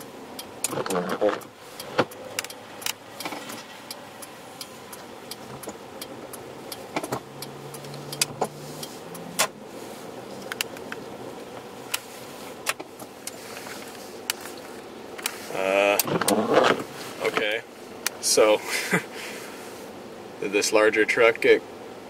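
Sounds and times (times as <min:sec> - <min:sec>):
sharp ticks: 0:00.0 - 0:09.6
car interior hum: 0:00.0 - 0:22.0.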